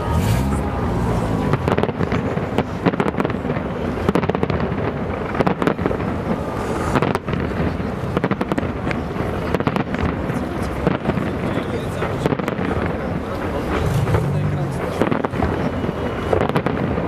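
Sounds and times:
fireworks bangs: 0:00.0 - 0:17.0
continuous low rumble: 0:08.6 - 0:17.0.

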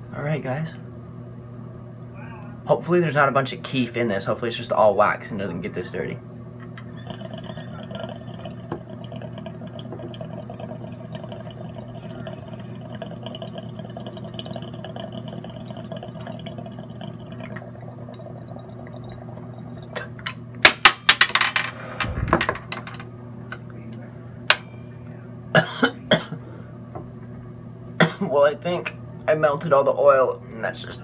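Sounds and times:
steady low hum: 0:00.0 - 0:31.0
water bubbling in glass pipe: 0:06.8 - 0:20.2
loud coughing: 0:25.5 - 0:26.5, 0:28.0 - 0:28.3.

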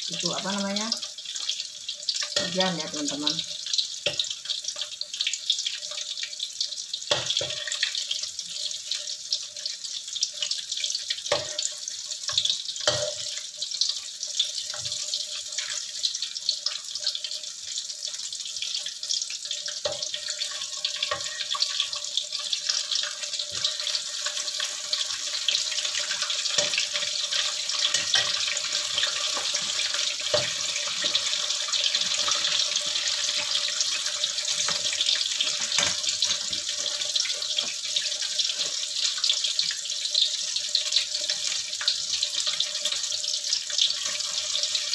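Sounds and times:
deep-frying sizzle in oil: 0:00.0 - 0:44.9
metal spatula scraping wok: 0:26.0 - 0:31.2.

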